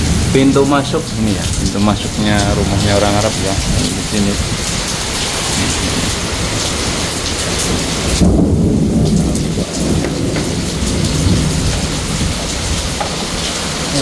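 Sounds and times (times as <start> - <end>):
loud low rumble: 0.0 - 6.9
heavy rain on pavement: 0.0 - 14.0.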